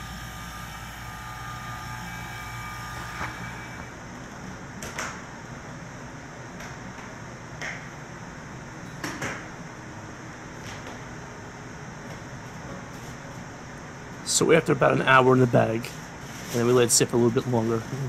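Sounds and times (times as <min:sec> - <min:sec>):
vacuum pump humming: 0:00.0 - 0:04.2.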